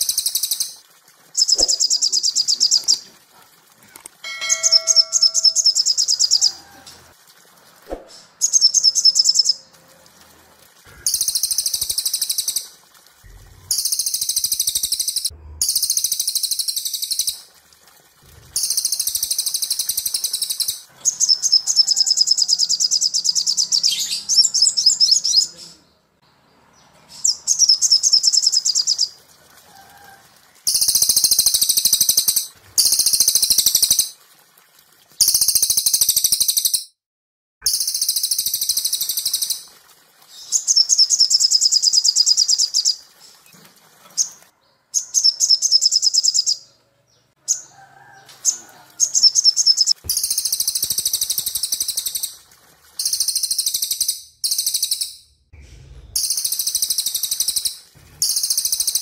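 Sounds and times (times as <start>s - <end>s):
songbirds singing fast trills: 4.5s - 6.6s, 44.2s - 47.7s.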